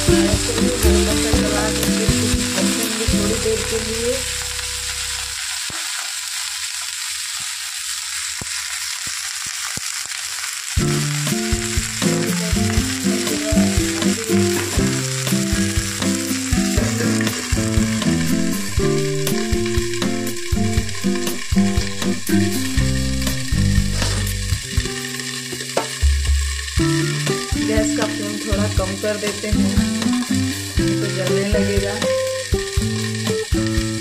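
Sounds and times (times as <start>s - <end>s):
background music: 0.0s - 4.4s, 10.8s - 25.4s, 26.6s - 34.0s
vegetables sizzling in oil: 0.0s - 34.0s.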